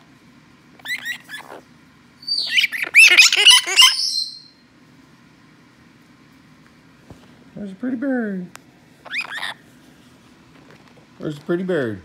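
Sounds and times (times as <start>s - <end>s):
parrot chirping and calling: 0.8s - 4.6s, 9.0s - 9.7s.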